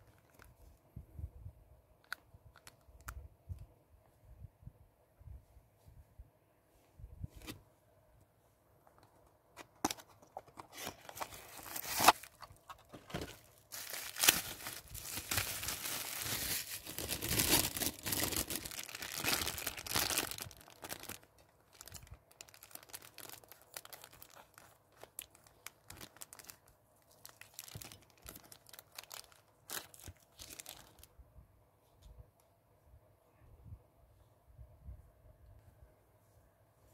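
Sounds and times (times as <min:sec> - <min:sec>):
plastic bag tearing and crinkling: 0:10.8 - 0:31.1.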